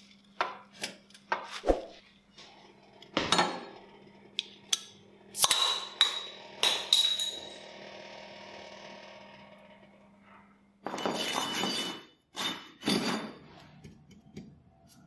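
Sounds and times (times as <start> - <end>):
glass bottles clinking: 5.4 - 7.6, 10.8 - 13.5.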